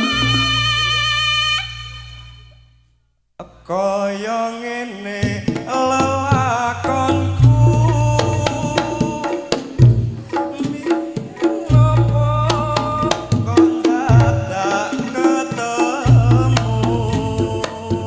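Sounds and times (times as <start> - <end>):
high wavering melody: 0.0 - 2.4
hand drum fast patterns: 5.3 - 18.0.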